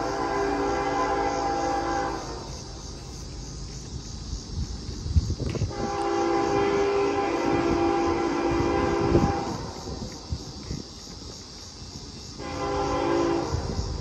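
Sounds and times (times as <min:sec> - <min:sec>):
locomotive air horn blast: 0:00.0 - 0:02.6, 0:05.7 - 0:10.0, 0:12.4 - 0:14.0.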